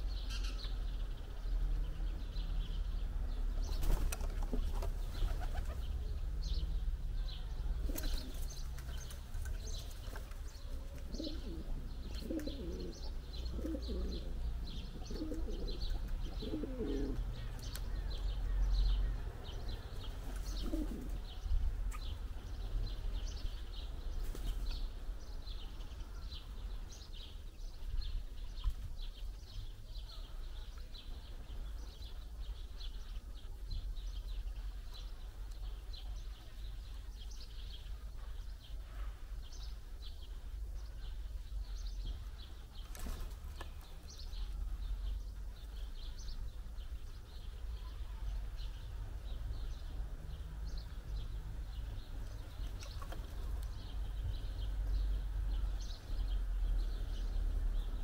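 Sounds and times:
small birds chirping: 0:00.0 - 0:58.0
pigeon cooing: 0:11.0 - 0:17.3, 0:20.5 - 0:21.2.

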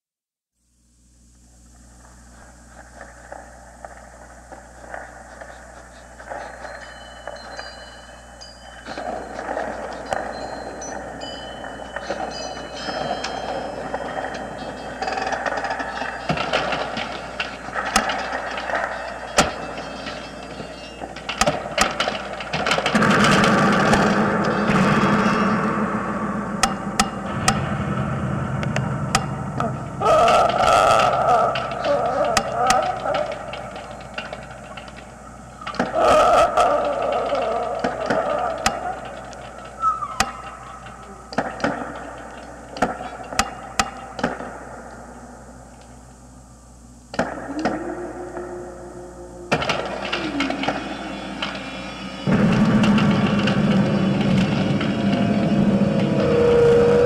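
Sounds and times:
ringing sound: 0:06.4 - 0:16.8, 0:18.1 - 0:21.2
loud steady sound: 0:22.5 - 0:35.9, 0:40.5 - 0:57.0
clattering mechanical rumble: 0:49.5 - 0:57.0.

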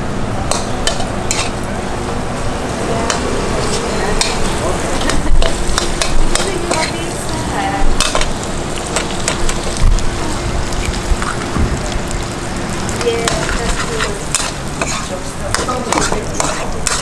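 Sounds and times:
food sizzling in oil: 0:00.5 - 0:01.7, 0:02.5 - 0:17.0
metal spatula scraping wok: 0:00.8 - 0:01.6, 0:03.0 - 0:07.3, 0:13.3 - 0:17.0
steel clanking on wok: 0:13.2 - 0:17.0.

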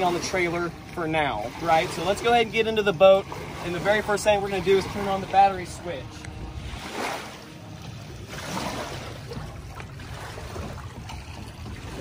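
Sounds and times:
water lapping: 0:00.0 - 0:12.0
wind: 0:00.0 - 0:12.0.

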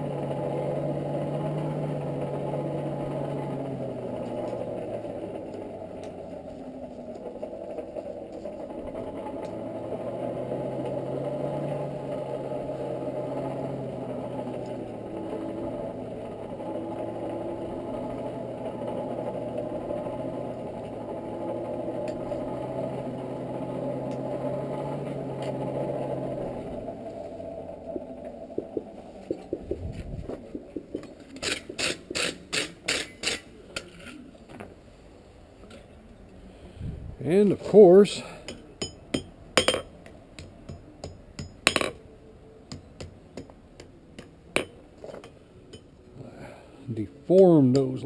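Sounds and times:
hand-cranked blower whirring: 0:00.0 - 0:33.9.

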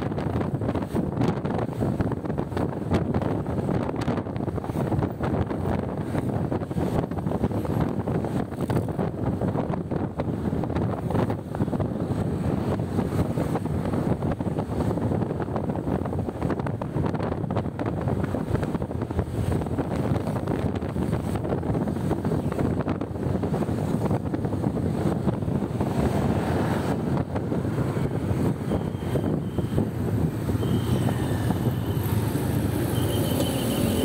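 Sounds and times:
wind buffeting microphone: 0:00.0 - 0:34.0
motorcycle running: 0:26.7 - 0:34.0.

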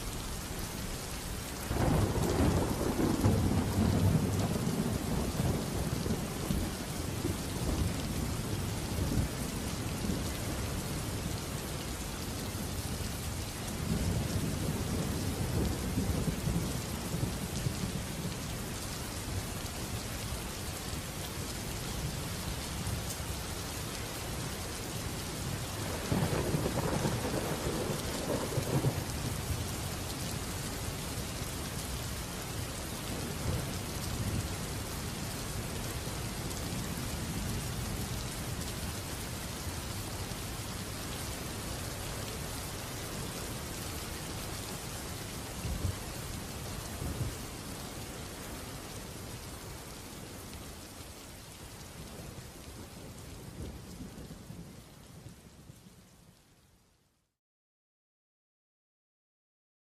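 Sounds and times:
steady rain: 0:00.0 - 0:57.4
thunder rumbling: 0:01.7 - 0:08.4, 0:25.8 - 0:29.5.

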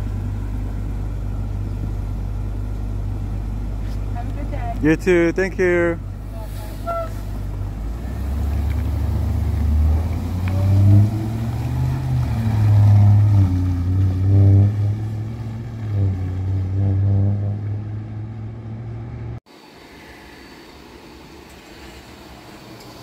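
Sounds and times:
bus engine revving: 0:00.0 - 0:19.4.

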